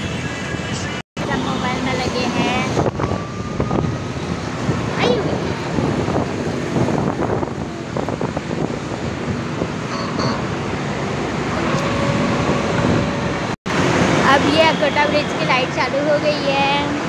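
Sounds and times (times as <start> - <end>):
road traffic: 0.0 - 17.0
wind buffeting microphone: 1.9 - 14.8.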